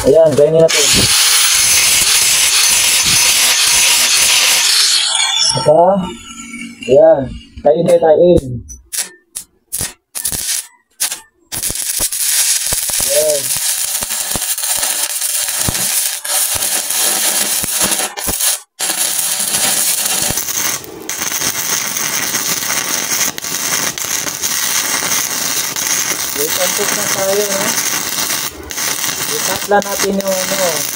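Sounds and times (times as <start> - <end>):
welding arc crackling: 0.0 - 7.0, 8.7 - 30.9.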